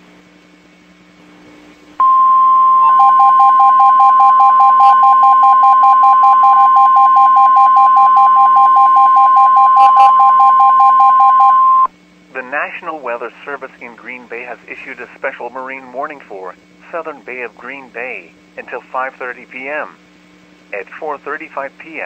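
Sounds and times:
rapidly pulsing lower beep: 2.0s - 11.9s
steady alert tone: 2.0s - 11.9s.

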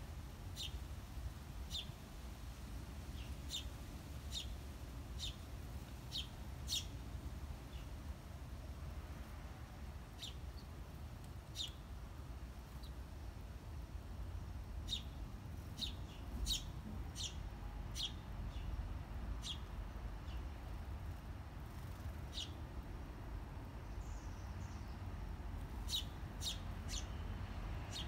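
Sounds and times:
small bird chirping: 0.5s - 0.8s, 1.7s - 2.0s, 3.2s - 3.7s, 4.3s - 5.5s, 6.1s - 7.0s, 10.2s - 11.9s, 12.7s - 13.0s, 14.3s - 20.5s, 21.7s - 22.8s, 23.8s - 28.0s.

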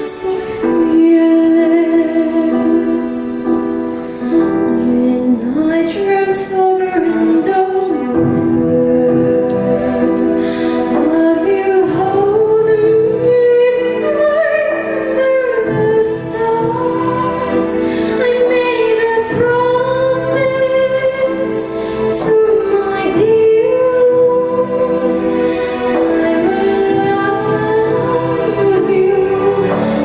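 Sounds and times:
soft instrumental accompaniment: 0.0s - 30.0s
girl singing into microphone: 4.7s - 25.1s.

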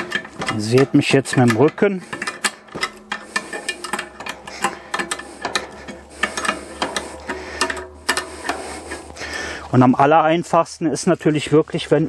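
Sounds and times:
spanner clicking on nuts: 0.0s - 9.4s.

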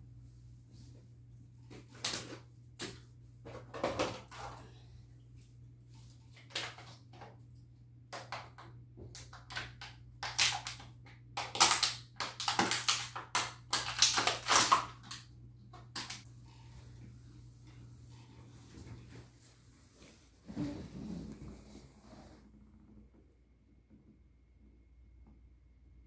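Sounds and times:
faint steady hum: 0.0s - 26.0s
plastic bottle crinkling: 11.4s - 15.2s.

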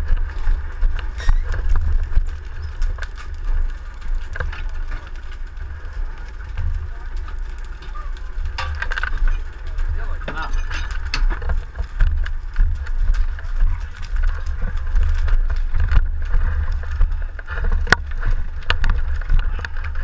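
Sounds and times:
hoses and metal couplings clattering: 7.8s - 11.7s.

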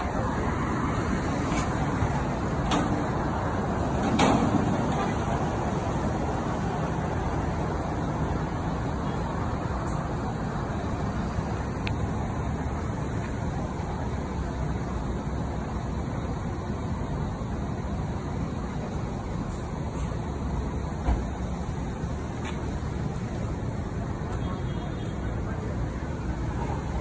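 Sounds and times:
road traffic rumble: 0.0s - 27.0s.

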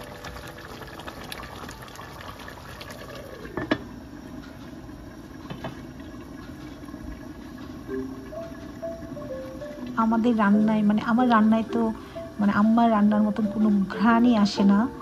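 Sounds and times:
curry bubbling in a pot: 0.0s - 11.5s.

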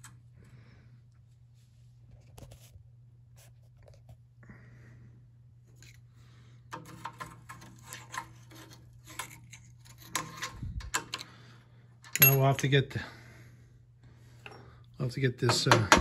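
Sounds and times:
steady low hum: 0.0s - 16.0s
metal tools clinking: 12.0s - 12.8s.

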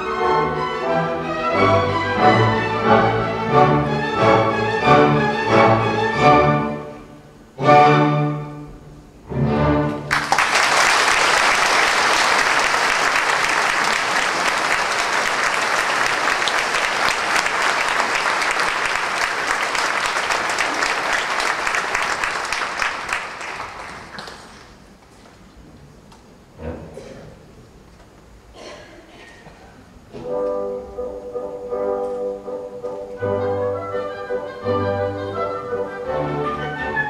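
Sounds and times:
orchestra chords: 0.0s - 10.4s, 30.1s - 37.0s
audience applauding: 10.1s - 24.8s.

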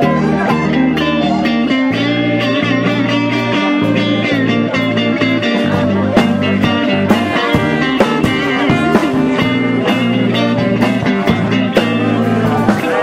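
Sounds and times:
bass notes: 0.0s - 13.0s
electric guitar lead: 0.0s - 13.0s
drum hits: 5.7s - 12.0s.

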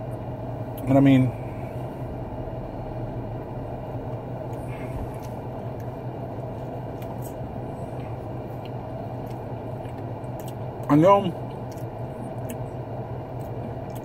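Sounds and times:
car engine idling: 0.0s - 14.0s
chewing bread roll: 4.0s - 14.0s.

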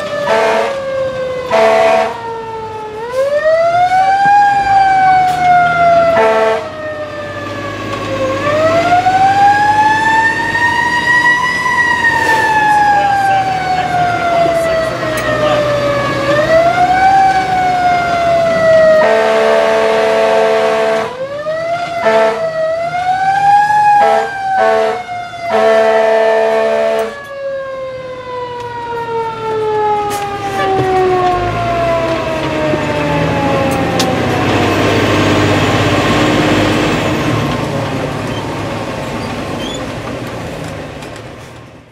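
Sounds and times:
diesel engine rumble: 0.0s - 41.9s
fire engine siren wailing: 0.0s - 41.9s
air horn blasts: 0.2s - 0.8s, 1.5s - 2.2s, 6.0s - 6.7s, 18.9s - 21.2s, 22.0s - 22.5s, 24.0s - 27.2s, 30.5s - 30.9s.

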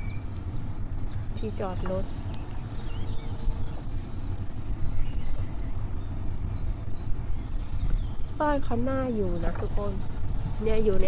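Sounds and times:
faint bird chirps: 0.0s - 11.0s
wind rumbling on microphone: 0.0s - 11.0s.

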